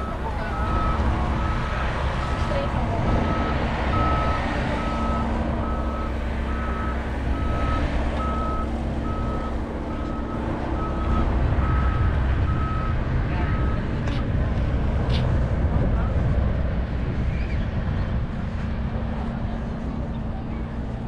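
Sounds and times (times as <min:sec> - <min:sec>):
reversing alarm beeping: 0:00.0 - 0:13.8
low engine noise: 0:00.0 - 0:21.0.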